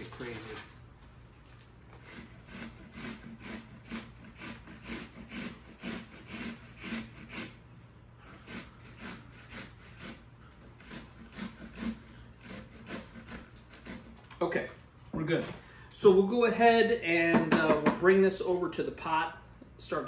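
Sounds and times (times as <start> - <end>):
onion rasping on metal grater: 2.0 - 7.6, 8.2 - 14.2.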